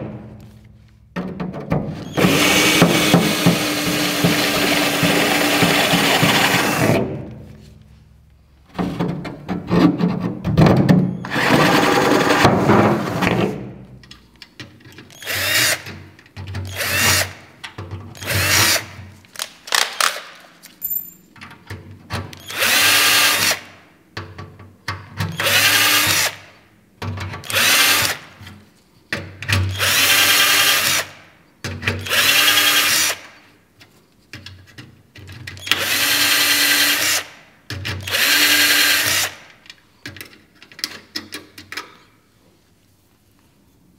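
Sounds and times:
cordless drill whining: 0:02.0 - 0:07.0, 0:11.2 - 0:12.3, 0:15.1 - 0:15.8, 0:22.4 - 0:23.6, 0:32.0 - 0:33.2, 0:35.6 - 0:37.3, 0:38.0 - 0:39.4.

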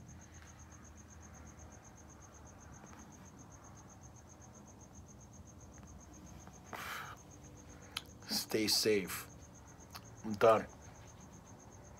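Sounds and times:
cricket chirping: 0:00.0 - 0:11.9
faint low hum: 0:00.0 - 0:11.9.

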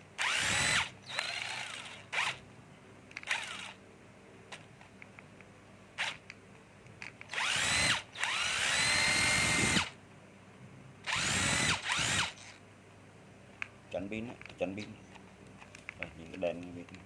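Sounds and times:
cordless drill motor whining: 0:00.2 - 0:02.4, 0:03.2 - 0:03.8, 0:07.3 - 0:10.0, 0:11.1 - 0:12.6
faint tool handling clicks: 0:13.5 - 0:17.0.

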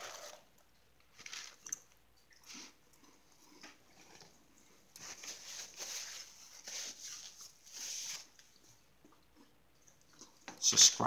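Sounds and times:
crackers crunching while chewed: 0:00.0 - 0:04.8.

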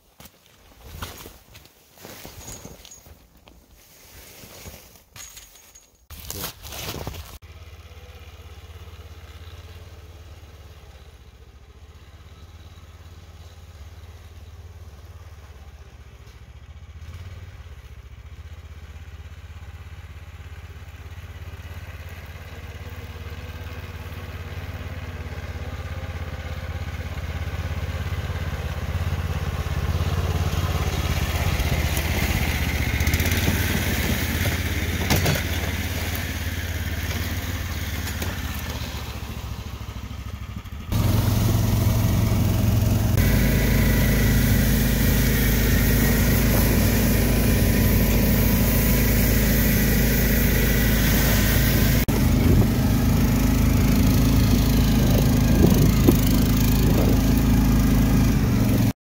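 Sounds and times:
snow machine engine running: 0:00.4 - 0:59.0.

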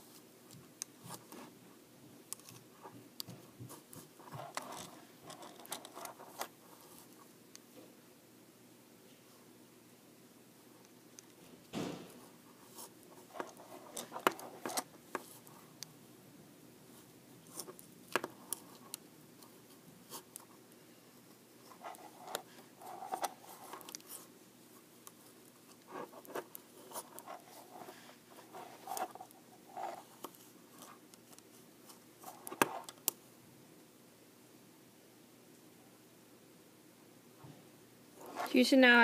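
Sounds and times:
needle and yarn scraping: 0:25.7 - 0:32.9.

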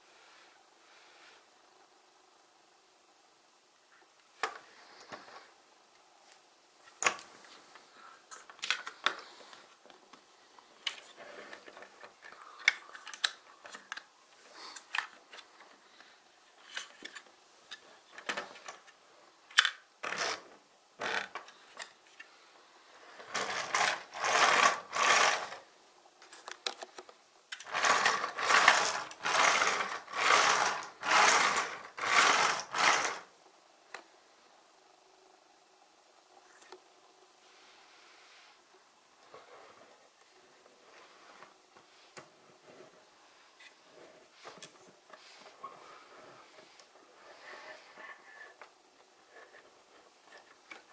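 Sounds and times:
plastic toy bricks clicking: 0:11.8 - 0:14.1, 0:19.5 - 0:20.4, 0:26.4 - 0:33.3
plastic wheels rolling on wooden table: 0:20.0 - 0:21.6, 0:23.0 - 0:25.7, 0:27.5 - 0:33.3.

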